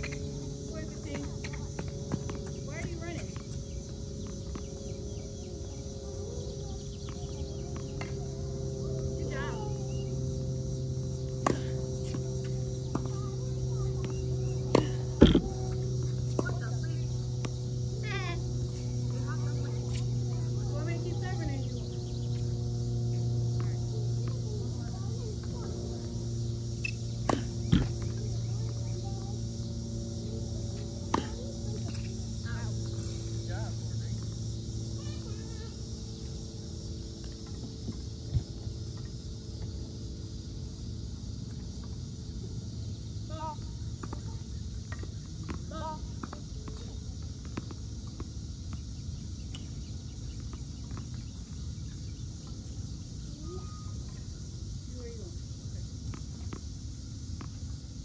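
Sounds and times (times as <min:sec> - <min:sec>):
steady low hum: 0:00.0 - 0:58.0
tennis ball knocks: 0:27.2 - 0:28.2, 0:31.0 - 0:32.1.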